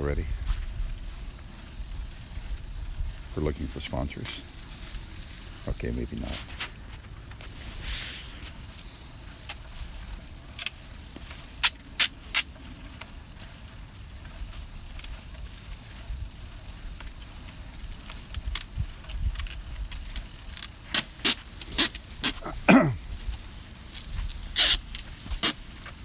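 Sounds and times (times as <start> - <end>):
wind buffeting microphone: 0.0 - 10.5, 12.6 - 20.6.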